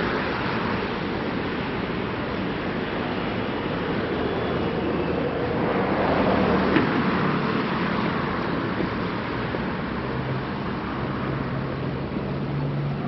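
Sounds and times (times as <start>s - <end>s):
street traffic road noise: 0.0s - 13.0s
vehicle passing: 2.7s - 13.0s.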